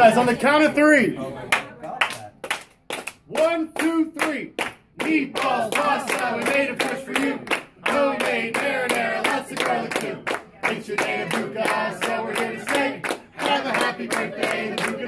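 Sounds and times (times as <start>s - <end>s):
hands clapping along: 1.5s - 15.0s
group singing: 5.0s - 15.0s.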